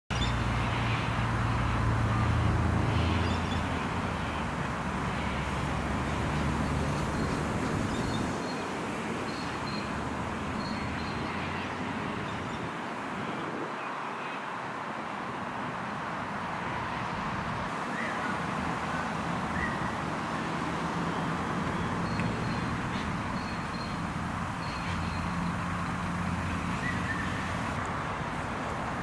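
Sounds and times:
vehicle engine hum: 0.1s - 12.3s, 17.4s - 29.0s
rush of passing traffic: 0.1s - 29.0s.

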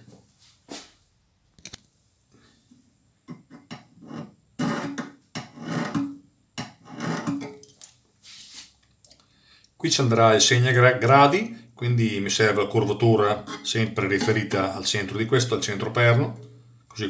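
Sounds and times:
metal point scratching metal: 3.5s - 6.1s, 6.8s - 7.6s, 13.3s - 14.6s.

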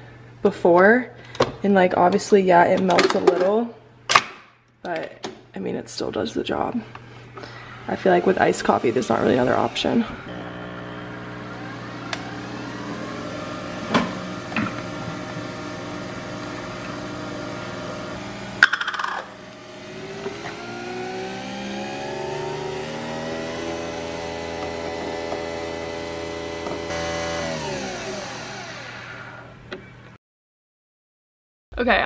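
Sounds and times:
coffee machine motor hum: 7.0s - 29.8s.

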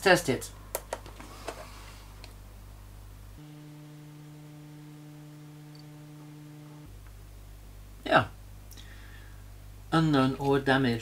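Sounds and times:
mains hum: 0.0s - 11.0s
buzzy hum: 2.0s - 10.4s
small clicks: 5.6s - 5.9s.

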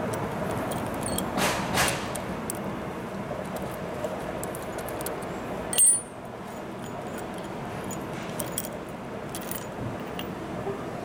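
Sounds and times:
steady background noise: 0.0s - 11.0s
small metallic clicks: 3.4s - 6.1s
bright metallic clink: 5.7s - 6.2s.

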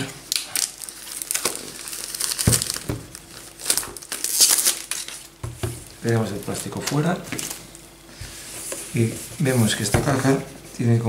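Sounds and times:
plastic wrap crinkling: 0.0s - 7.9s.

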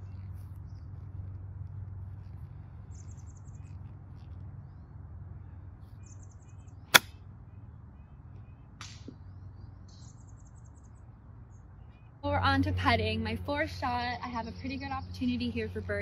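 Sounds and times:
golf club striking ball: 6.9s - 7.2s.

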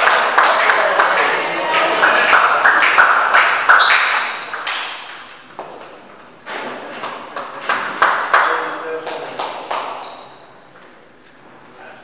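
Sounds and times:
short high squeak: 3.8s - 5.4s.

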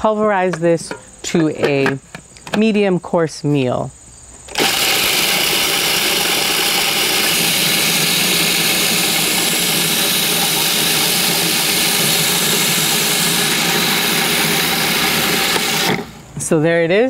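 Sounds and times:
food processor grinding: 4.5s - 16.3s.

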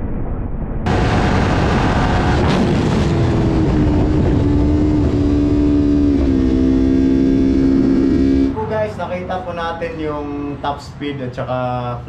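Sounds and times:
wind rushing over microphone: 0.0s - 8.1s
motorcycle engine at high revs: 0.9s - 8.6s.

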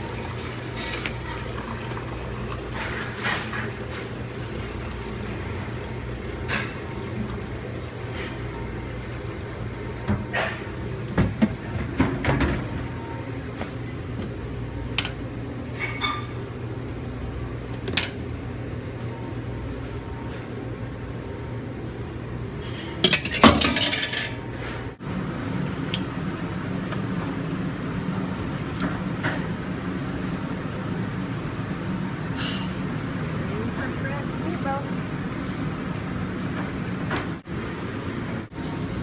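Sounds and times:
steady low hum: 0.0s - 39.0s
metal kitchenware clinking: 23.0s - 24.4s.

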